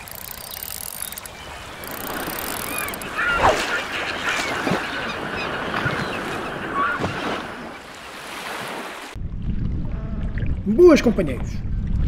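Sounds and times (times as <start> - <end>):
honking bird calls: 0.4 - 7.9.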